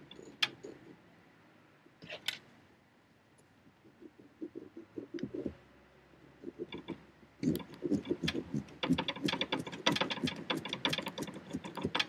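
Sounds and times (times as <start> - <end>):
carving tool sawing pumpkin: 6.4 - 12.0.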